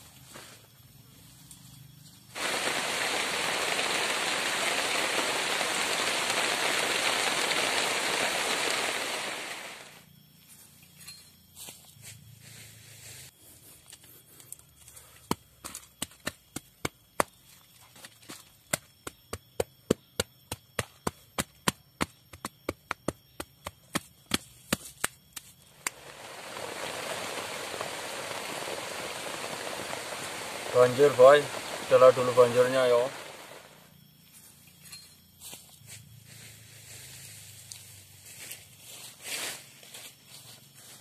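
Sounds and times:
heavy rain: 0:02.4 - 0:10.0, 0:25.9 - 0:33.8.

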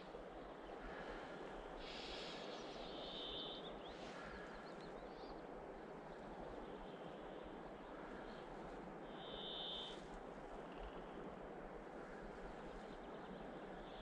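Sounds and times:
outdoor background hiss: 0:00.0 - 0:14.0
songbirds chirping and trilling: 0:00.0 - 0:14.0.

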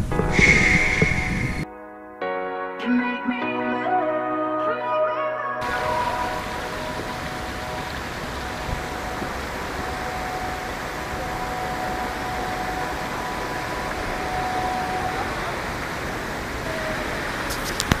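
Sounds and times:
waterfall cascading over rocks: 0:05.6 - 0:18.0.

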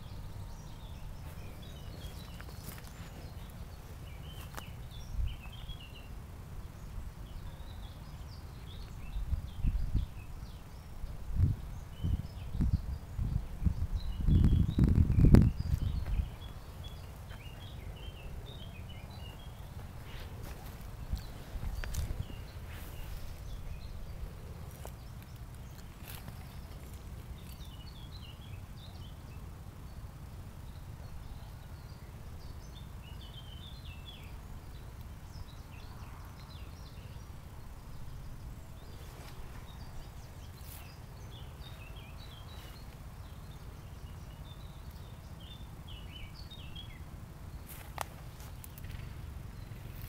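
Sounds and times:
wind rumble on microphone: 0:00.0 - 0:29.1
small birds chirping: 0:00.0 - 0:50.0.

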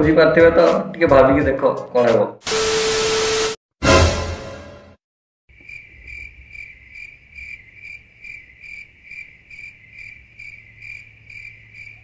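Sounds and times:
crickets chirping: 0:05.5 - 0:12.0.

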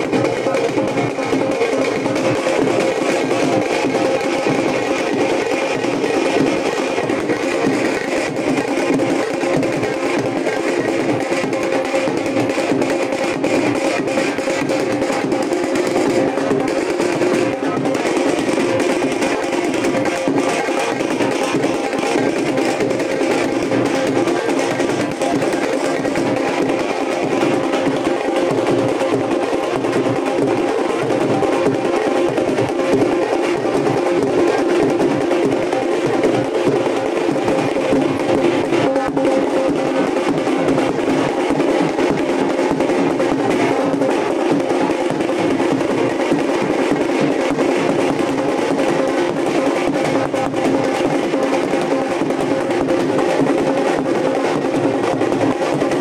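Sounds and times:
fast drumming music over drone: 0:00.0 - 0:56.0.

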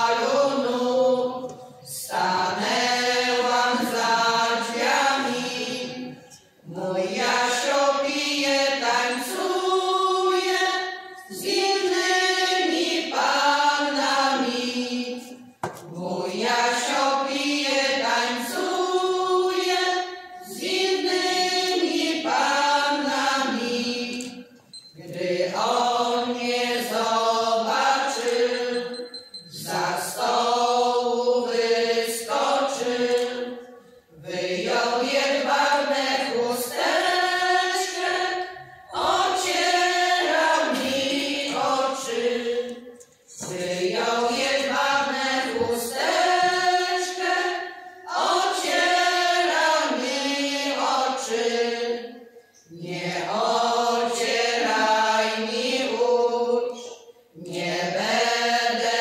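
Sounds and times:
women's choir singing unaccompanied: 0:00.0 - 0:59.0.

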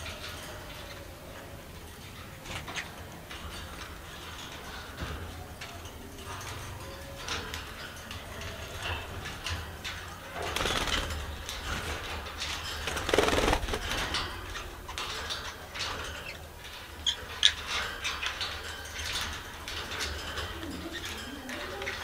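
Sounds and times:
budgerigars chirping and chattering: 0:14.9 - 0:18.6.

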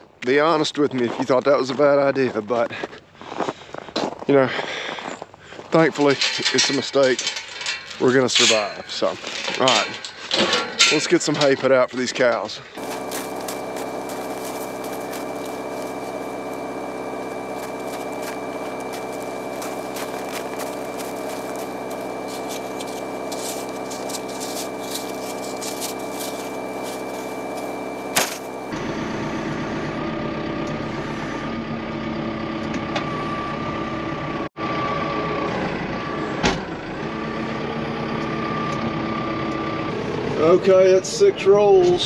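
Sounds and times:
farm vehicle engine running: 0:12.8 - 0:41.7.

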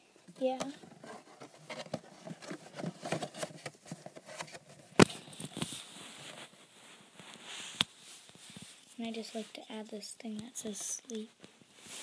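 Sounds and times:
paper rustling: 0:00.4 - 0:06.6.

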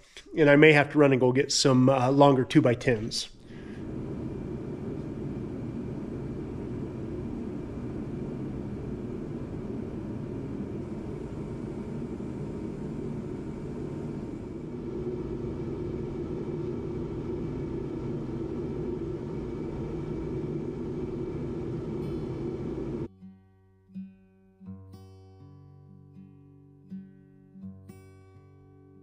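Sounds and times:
shop heater fan rushing: 0:00.0 - 0:23.1.

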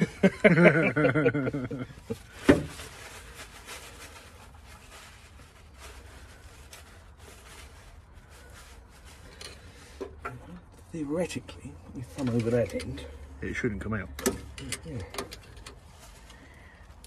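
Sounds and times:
clicks and rustles of hand tools: 0:12.1 - 0:13.0, 0:14.1 - 0:16.4.

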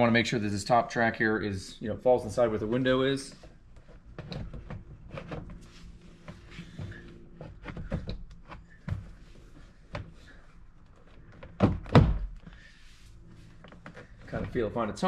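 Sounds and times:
plastic panel knocking and rubbing: 0:03.8 - 0:05.6, 0:06.3 - 0:09.2.

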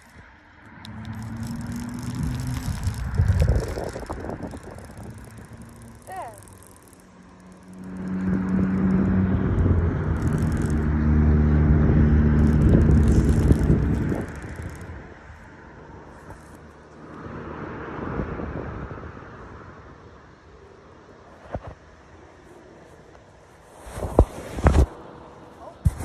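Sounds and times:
vehicle engine passing: 0:00.0 - 0:19.8.

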